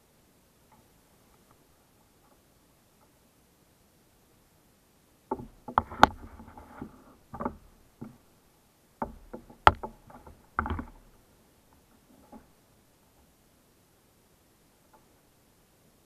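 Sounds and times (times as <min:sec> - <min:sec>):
knocks on plastic kayak: 0:05.3 - 0:06.4, 0:09.0 - 0:11.0.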